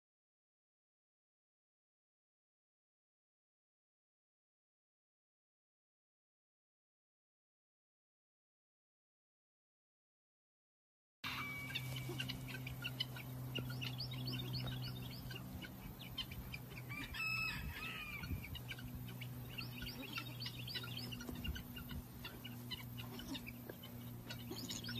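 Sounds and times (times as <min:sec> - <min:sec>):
birds chirping: 0:11.3 - 0:24.9
steady low hum: 0:11.3 - 0:24.9.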